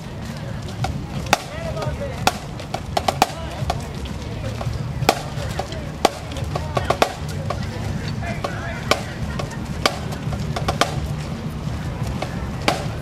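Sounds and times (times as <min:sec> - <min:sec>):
marching drumline playing: 0:00.8 - 0:13.0.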